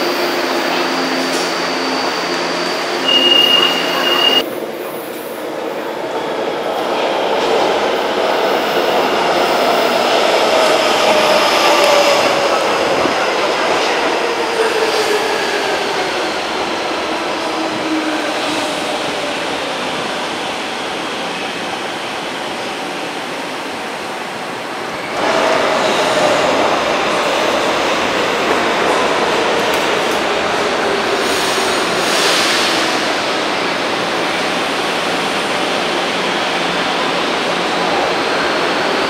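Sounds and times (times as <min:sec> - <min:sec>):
train traction whine: 0:00.0 - 0:05.2.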